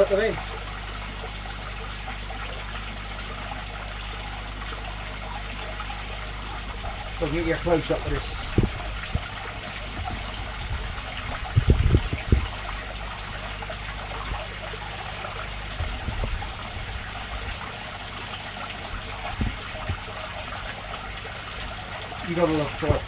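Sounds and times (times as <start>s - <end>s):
aquarium filter water trickling: 0.0s - 23.0s
low bumps: 6.8s - 12.8s, 18.9s - 20.7s.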